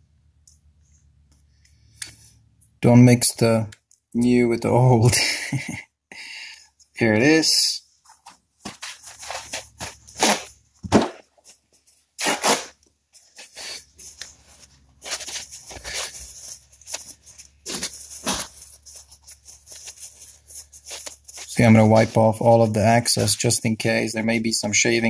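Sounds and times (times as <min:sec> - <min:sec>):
plastic case rustling in fingers: 0:08.0 - 0:12.2, 0:13.1 - 0:22.5
sharp plastic scrapes: 0:08.2 - 0:21.8.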